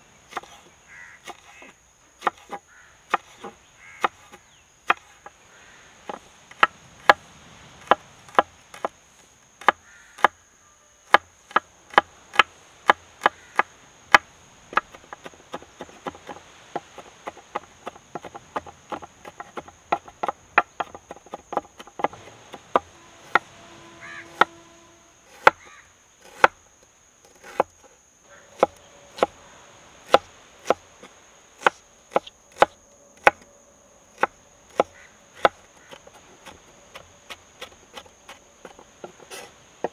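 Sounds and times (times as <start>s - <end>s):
high insect buzz: 0.0s - 39.9s
knife chopping on wooden board: 0.3s - 0.6s, 2.2s - 5.1s, 24.2s - 24.6s, 25.3s - 25.6s, 27.3s - 27.8s, 28.6s - 29.3s, 30.1s - 33.4s, 34.2s - 39.9s.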